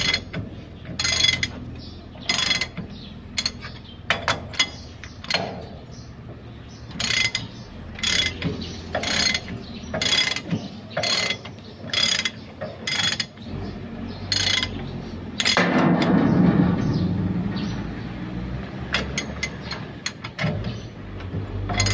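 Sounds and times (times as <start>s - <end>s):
ratchet wrench clicking: 0.0s - 0.3s, 1.0s - 1.6s, 2.3s - 2.8s, 7.0s - 13.4s, 14.3s - 14.8s
low rumble: 13.5s - 18.8s.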